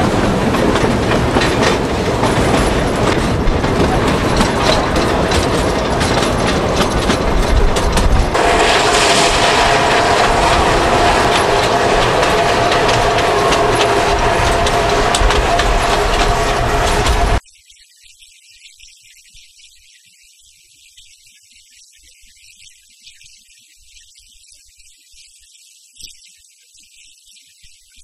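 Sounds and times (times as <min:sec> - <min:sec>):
train wheels clattering on track: 0:00.0 - 0:17.4.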